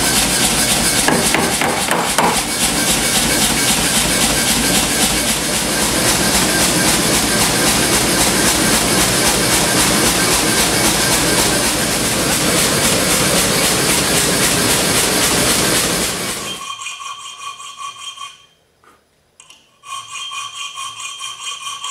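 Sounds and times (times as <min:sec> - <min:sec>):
gas burner hissing: 0:00.0 - 0:16.6.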